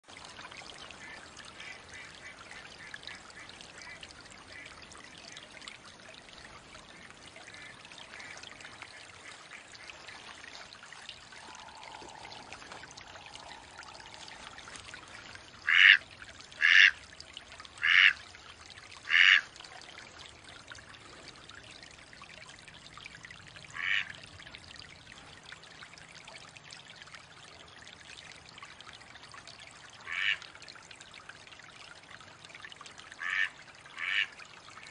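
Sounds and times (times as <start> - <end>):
running water: 0.0 - 34.9
duck quacking: 15.7 - 16.0.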